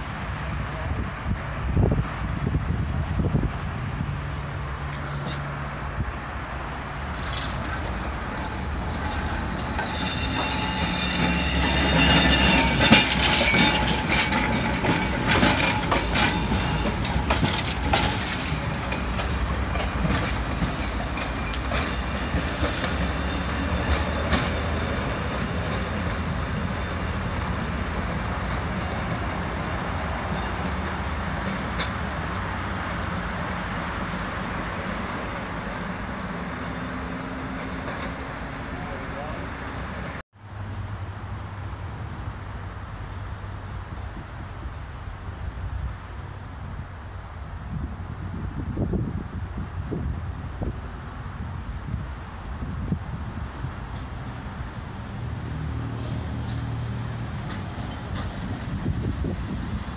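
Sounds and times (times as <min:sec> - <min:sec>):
tram wheels clattering over rails: 0:04.5 - 0:40.2, 0:50.1 - 0:59.9
high wheel squeal: 0:04.9 - 0:06.4, 0:07.3 - 0:27.9.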